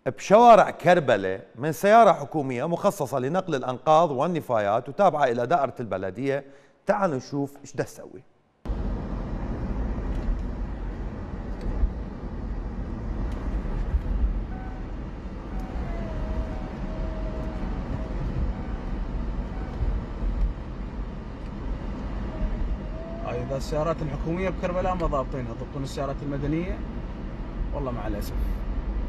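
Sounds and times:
car road and engine rumble: 8.7 - 29.0.

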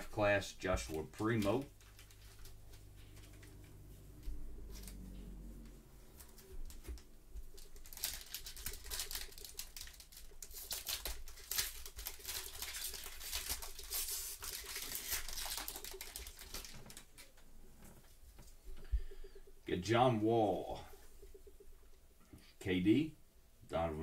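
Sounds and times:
foil wrapper tearing and crinkling: 1.3 - 3.4, 7.6 - 17.2.

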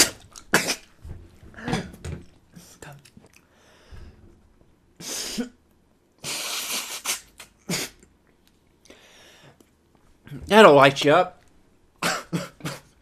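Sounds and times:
man coughing: 0.0 - 0.9, 1.6 - 2.1, 12.0 - 13.0.

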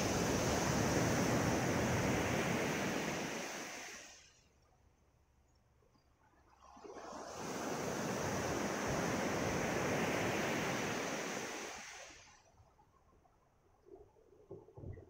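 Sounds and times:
wave washing up pebble beach: 0.0 - 4.2, 7.2 - 12.3.

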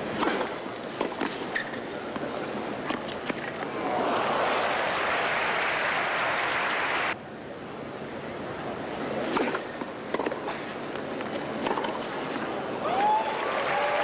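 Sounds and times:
crowd hum: 1.9 - 7.2
crowd cheering and applauding: 3.8 - 7.2, 12.8 - 14.0.

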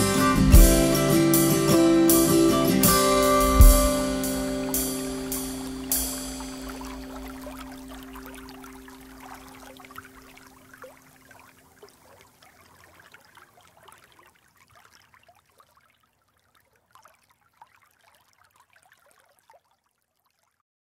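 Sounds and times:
acoustic guitar notes ringing: 0.0 - 10.0
stream trickling and babbling: 0.2 - 20.6.

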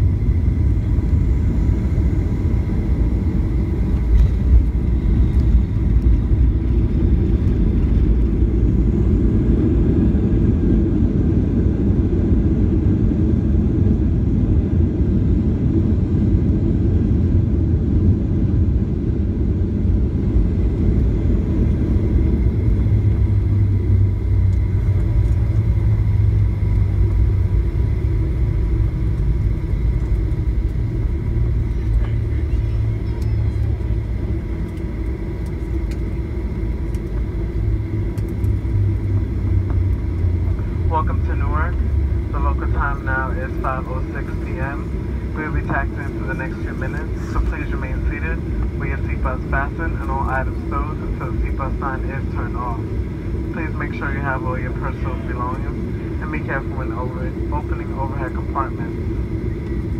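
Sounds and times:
airliner cabin rumble on runway: 0.0 - 59.9
deep steady hum: 0.0 - 59.9.

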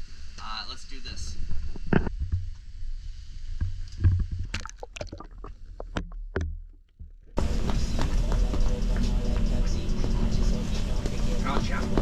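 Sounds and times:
muffled low rumble: 7.0 - 12.0.

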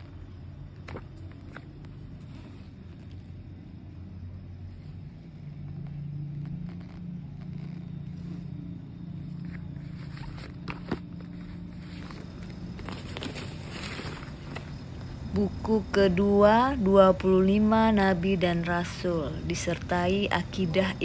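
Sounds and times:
book cover rustling: 0.0 - 3.5, 4.6 - 15.0
low motor hum: 0.0 - 21.0.

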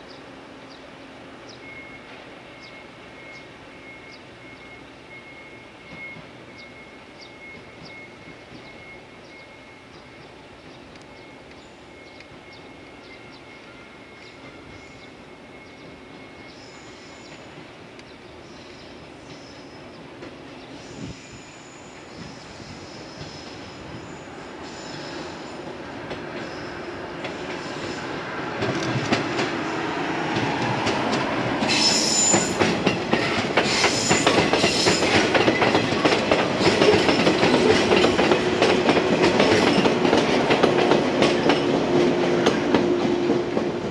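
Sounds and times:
train passing: 0.0 - 43.9
high wheel squeals: 20.6 - 25.7, 31.5 - 35.8
wheels clacking over rail joints: 25.9 - 43.9.

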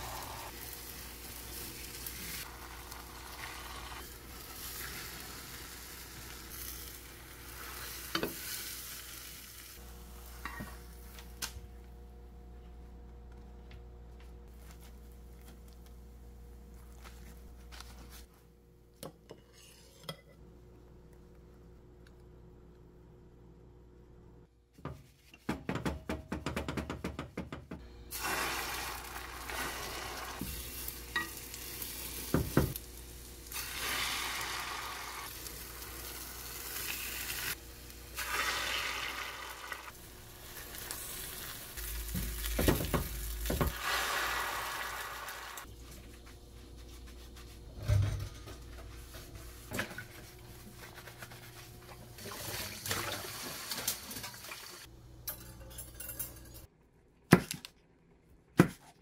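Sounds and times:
egg sizzling in a pan: 0.0 - 10.6, 28.1 - 45.7
spoon and ladle scraping pan: 19.2 - 20.4.

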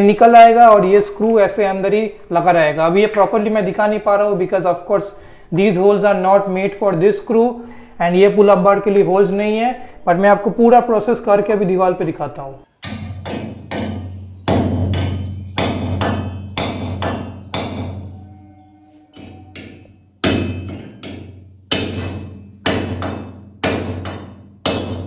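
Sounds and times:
hammer striking metal: 12.8 - 25.0.

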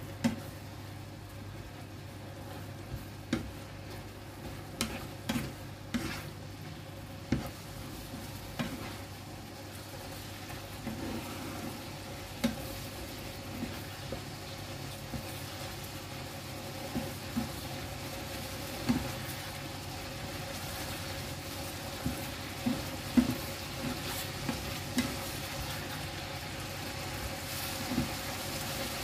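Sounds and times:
food sizzling in frying pan: 0.0 - 29.0
spatula scraping pan: 2.4 - 9.3, 10.0 - 14.2, 22.0 - 26.0.

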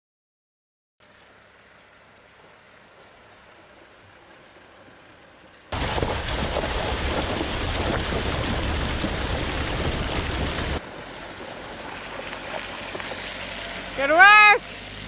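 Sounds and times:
tyre splashing through puddle: 5.7 - 14.0.

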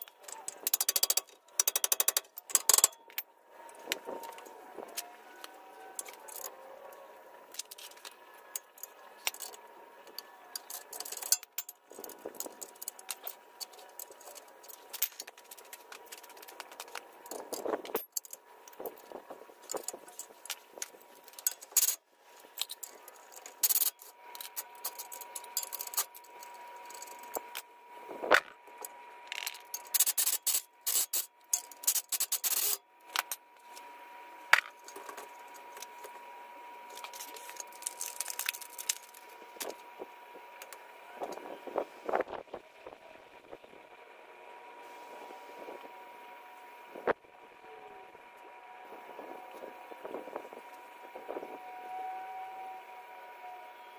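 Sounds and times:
metal tools clinking and scraping: 0.0 - 3.2, 7.6 - 19.0, 19.6 - 27.4.

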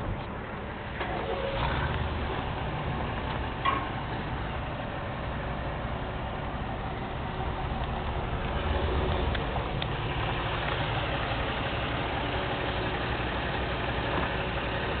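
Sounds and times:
diesel truck engine idling: 0.0 - 15.0.

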